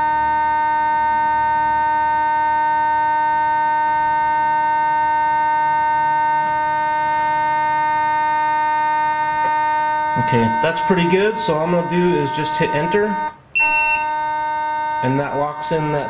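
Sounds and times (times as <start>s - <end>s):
servo humming: 0.0s - 16.0s.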